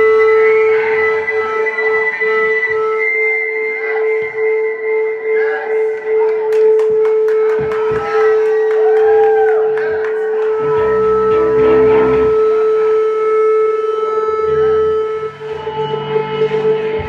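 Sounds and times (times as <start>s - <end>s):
high electronic drone note: 0.0s - 9.2s, 10.4s - 17.0s
deep low notes: 5.8s - 17.0s.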